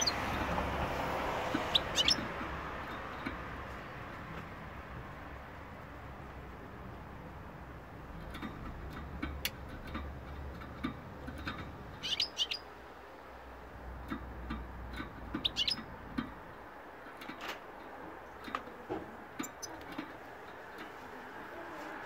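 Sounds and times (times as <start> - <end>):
goldfinch chirping: 0.0 - 0.4, 1.5 - 2.3, 11.9 - 12.8, 15.3 - 16.0, 19.4 - 19.9.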